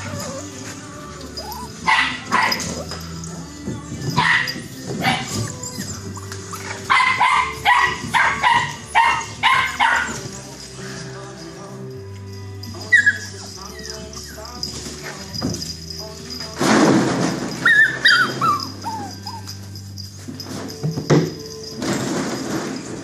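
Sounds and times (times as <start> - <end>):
puppies barking in high yips: 0.0 - 3.2, 4.0 - 10.4, 12.8 - 15.8, 17.4 - 20.4.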